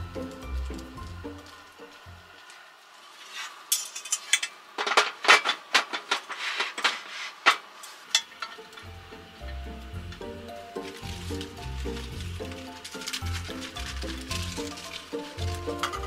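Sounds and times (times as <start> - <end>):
plastic and metal parts clattering: 3.7 - 8.9, 9.5 - 16.0.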